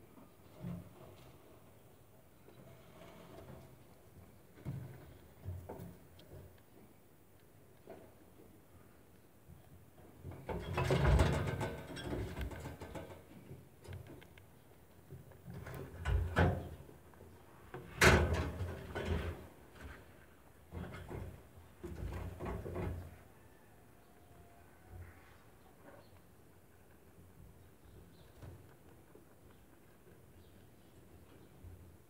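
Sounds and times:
knocks and rattles against cage: 10.2 - 13.5, 15.5 - 16.9, 18.0 - 19.9, 20.7 - 23.1.

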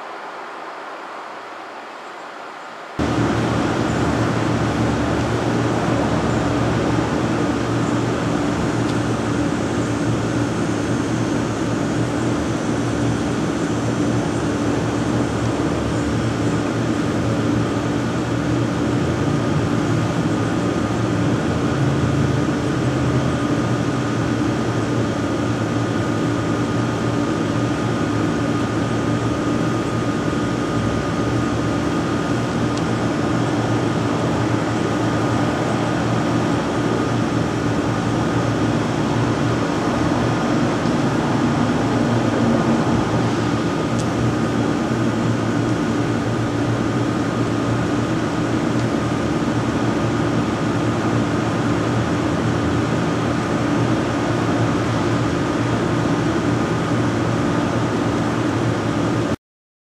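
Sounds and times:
warning siren whirring: 29.8 - 46.1.

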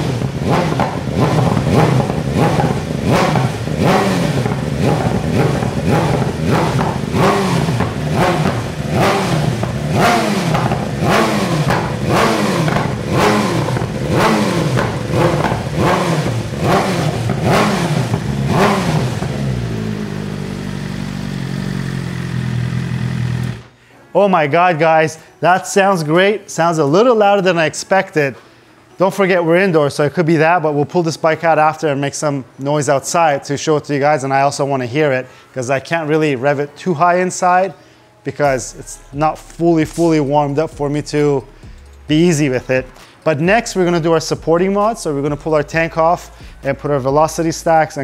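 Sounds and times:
motorcycle engine revving: 0.0 - 23.8, 38.5 - 48.0.

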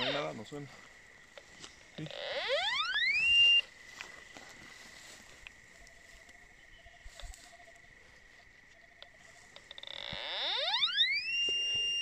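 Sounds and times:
faint insect chirping: 0.0 - 12.0
faint steady high tone: 2.0 - 4.1, 4.8 - 9.7, 10.3 - 12.0.

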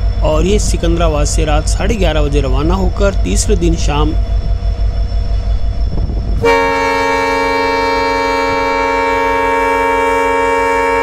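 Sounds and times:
train rumbling low: 0.0 - 11.0
locomotive horn blast: 6.4 - 11.0.

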